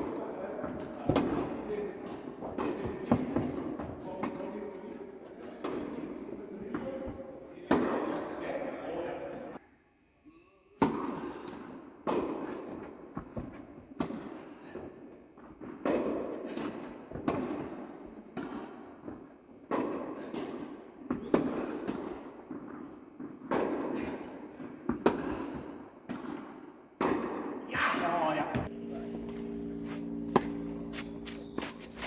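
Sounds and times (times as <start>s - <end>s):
tennis ball bouncing: 0.0s - 4.5s, 5.4s - 8.3s, 10.8s - 32.0s
tennis ball racket hits echoing: 0.0s - 9.6s, 10.8s - 32.0s.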